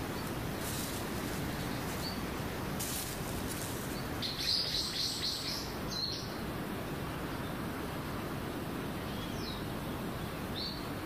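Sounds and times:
birds chirping: 0.0 - 6.4
steady background hiss: 0.0 - 11.0.

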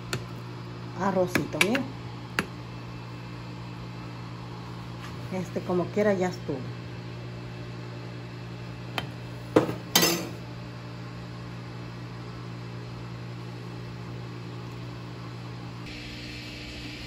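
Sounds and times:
steady low hum: 0.0 - 17.0
dishes clinking: 9.6 - 10.4.

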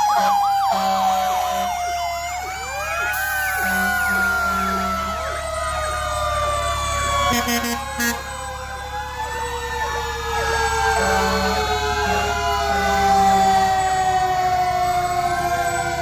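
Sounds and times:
fire truck sirens wailing: 0.0 - 16.0
truck engines rumbling: 0.0 - 16.0
horn blasts: 3.3 - 5.2, 7.3 - 8.3, 10.9 - 13.0.

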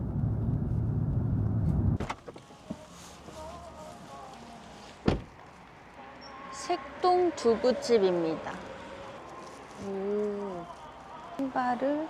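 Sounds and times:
car cabin road noise: 0.0 - 9.8
thump: 5.0 - 5.3.

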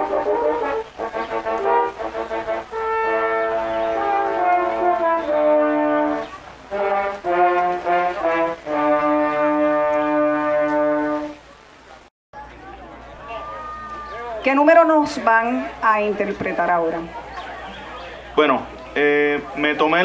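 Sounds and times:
french horns playing chords: 0.0 - 11.4.

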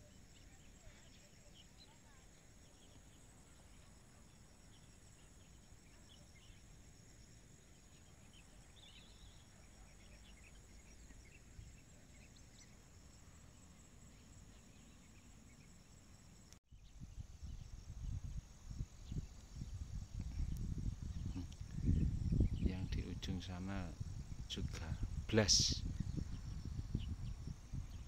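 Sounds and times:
faint chirps: 0.0 - 28.0
faint insect buzz: 0.0 - 28.0.

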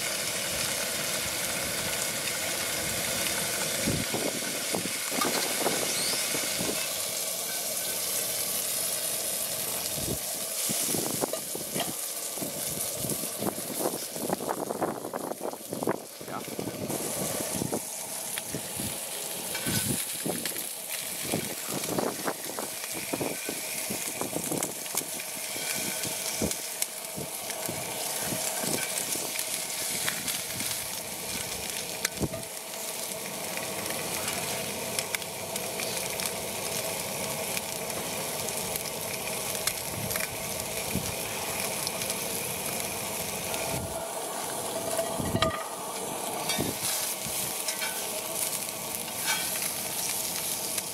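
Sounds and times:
fish sizzling in hot oil: 0.0 - 50.9
metal spatula scraping pan: 49.2 - 49.5.

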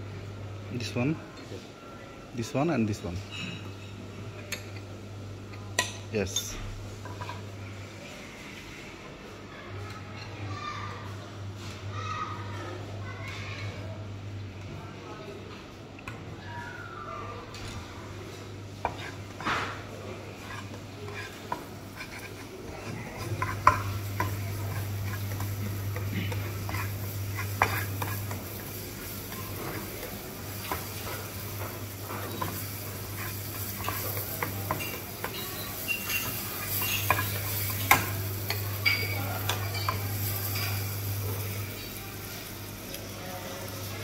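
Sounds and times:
spatula scraping a wok: 18.9 - 19.6, 20.3 - 29.9, 32.0 - 40.9
vegetables sizzling in oil: 23.2 - 44.0.

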